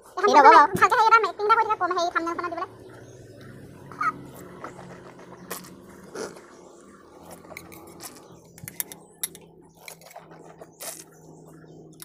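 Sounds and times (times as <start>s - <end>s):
low steady hum: 0.0s - 12.0s
spoon scraping steel bowl: 7.2s - 11.2s.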